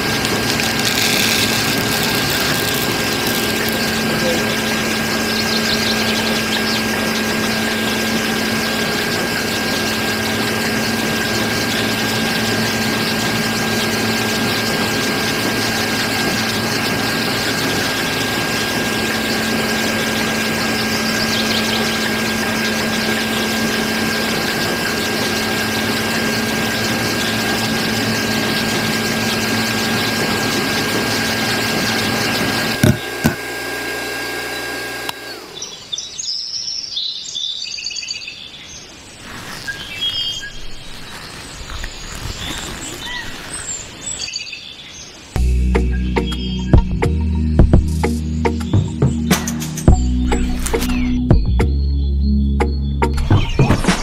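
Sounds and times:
electric motor running grain mill: 0.0 - 35.9.

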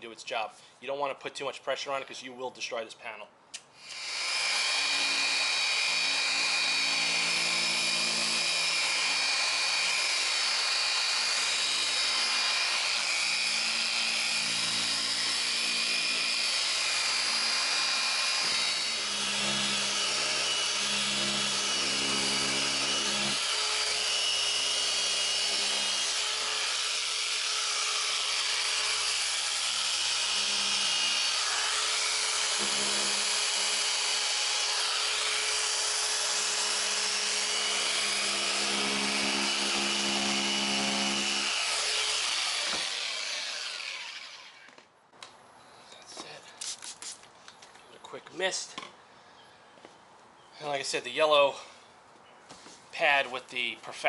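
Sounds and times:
polisher running: 4.0 - 33.5.

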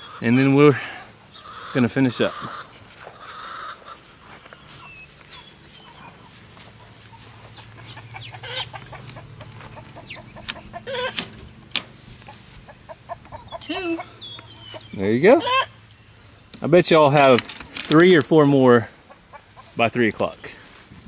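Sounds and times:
poultry clucking: 0.0 - 17.3, 18.0 - 21.0
low steady hum: 3.8 - 19.5.

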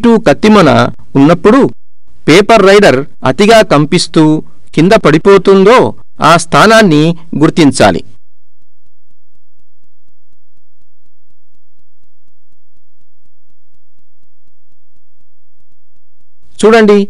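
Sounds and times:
low hum: 1.8 - 2.3, 8.1 - 16.6.

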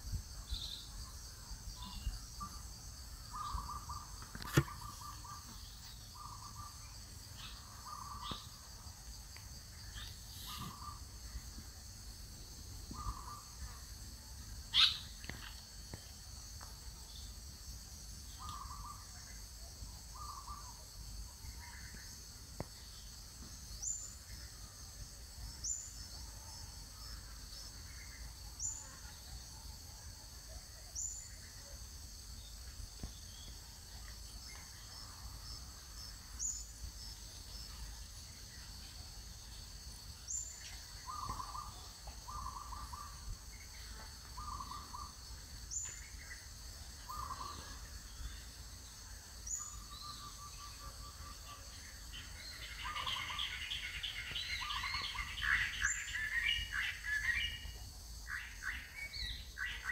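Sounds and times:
high insect drone: 0.0 - 59.9
bird chirping: 1.7 - 11.8, 12.7 - 13.9, 14.7 - 16.0, 18.2 - 19.4, 20.0 - 24.6, 32.4 - 59.9.

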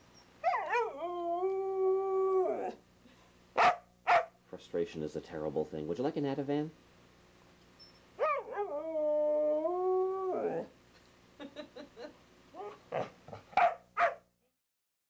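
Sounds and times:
dog howling: 0.4 - 2.8, 8.2 - 10.7.

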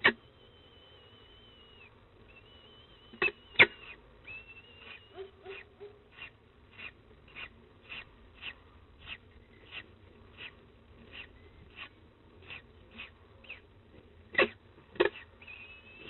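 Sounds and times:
falcon chicks peeping: 0.0 - 13.7
chicks cheeping: 0.2 - 6.9.

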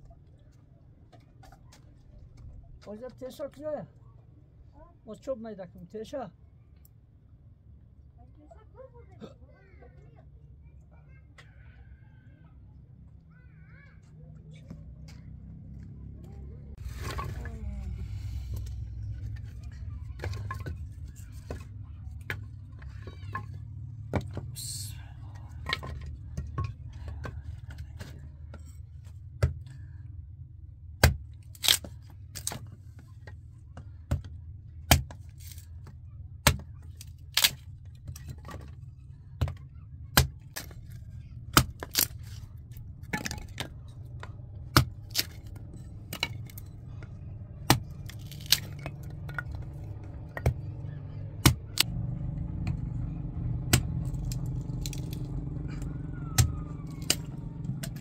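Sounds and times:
low steady rumble: 14.2 - 58.0
axe chopping wood: 29.4 - 29.6, 31.0 - 32.7, 34.1 - 35.6, 36.4 - 37.6, 39.4 - 42.4, 44.6 - 46.6, 47.6 - 50.8, 51.4 - 51.9, 53.6 - 55.2, 56.3 - 58.0.

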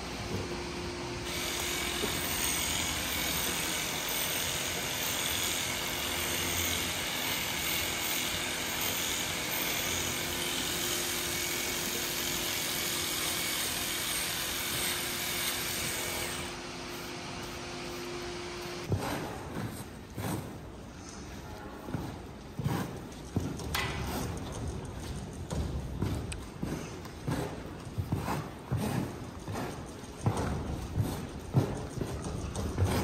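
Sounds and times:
electric clippers shaving hair: 1.3 - 4.0.

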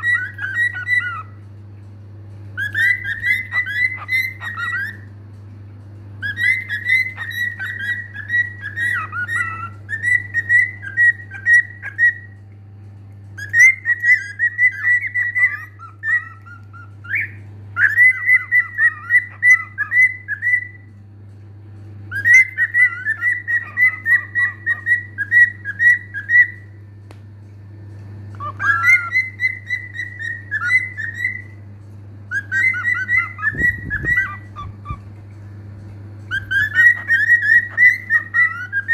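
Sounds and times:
cockatiel whistling: 0.0 - 1.4, 2.6 - 5.1, 6.2 - 12.4, 13.4 - 20.9, 22.1 - 26.7, 28.3 - 31.6, 32.3 - 35.0, 36.3 - 38.9.

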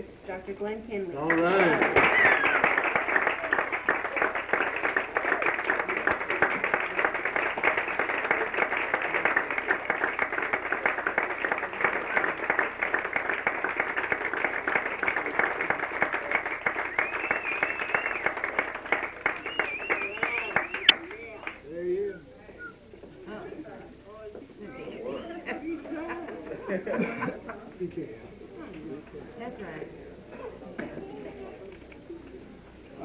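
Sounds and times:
audience applauding: 1.2 - 21.7.

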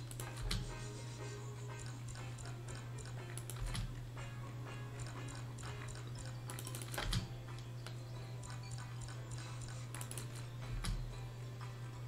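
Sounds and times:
steady low hum: 0.0 - 12.0
rapid clicking of spinning reels: 1.8 - 3.9, 5.0 - 7.2.

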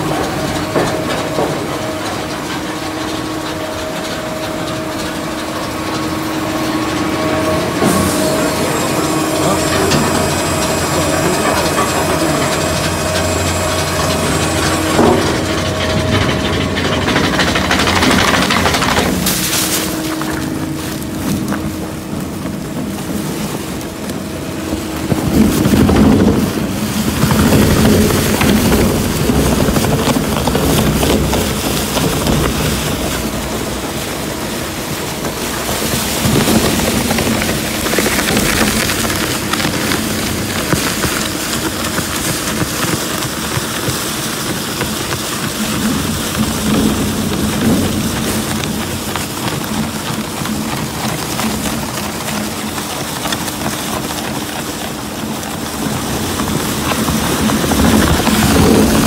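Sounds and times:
motor hum: 0.0 - 59.0
plastic shredder running: 0.0 - 59.0
plastic film crackling: 18.1 - 59.0.

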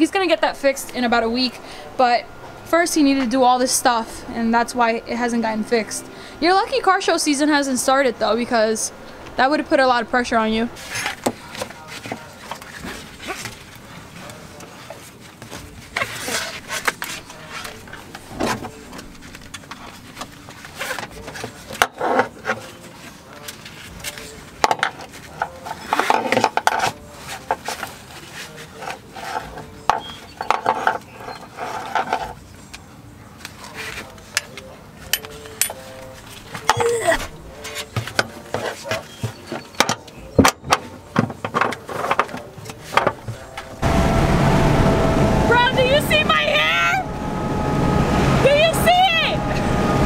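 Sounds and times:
nylon webbing rubbing: 10.8 - 32.7
metal buckles clicking and clinking: 34.3 - 35.9.

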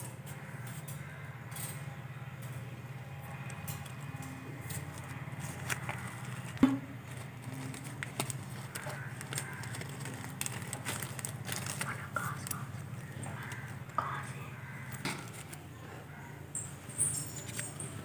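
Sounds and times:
steady low hum: 0.0 - 18.0
small objects clicking and rustling: 3.3 - 13.9, 14.8 - 15.6, 16.6 - 18.0
sharp knock: 6.6 - 6.9.

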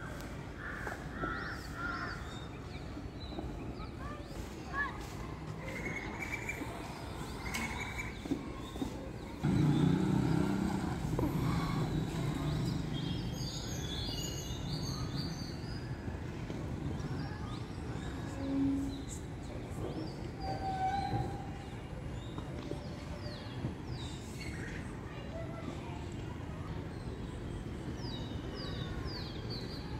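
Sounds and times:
low traffic rumble: 0.0 - 29.9
birds chirping: 5.6 - 15.9.

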